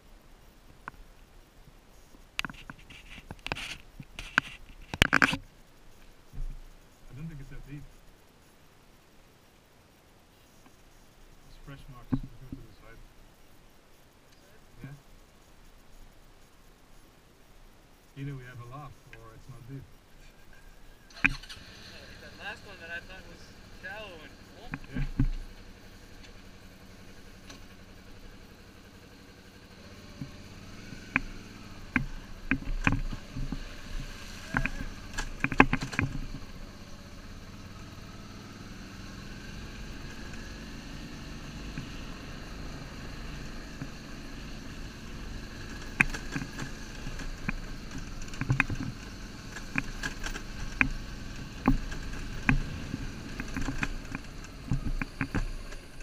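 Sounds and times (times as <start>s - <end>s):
motorcycle engine at low speed: 0.0s - 8.8s, 10.6s - 16.5s, 17.9s - 56.0s
bike knocking and rattling on stones: 2.2s - 5.5s, 24.6s - 26.6s, 29.8s - 37.4s, 43.6s - 56.0s.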